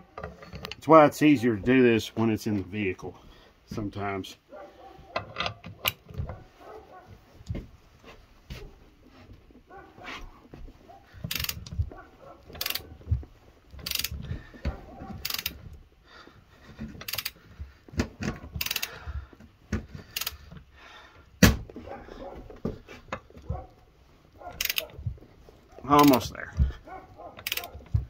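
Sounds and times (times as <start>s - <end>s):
ratchet pawl clicking: 11.3s - 11.7s, 12.6s - 12.9s, 13.8s - 14.2s, 15.2s - 15.6s, 17.0s - 17.4s, 18.6s - 19.0s, 20.1s - 20.4s, 24.6s - 25.0s, 27.4s - 27.8s.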